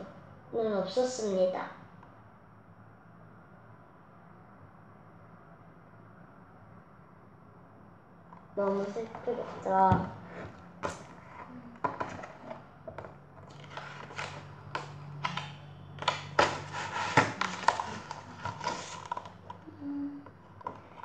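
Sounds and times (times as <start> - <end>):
book pages turning: 8.6 - 12.7, 13.4 - 19.6.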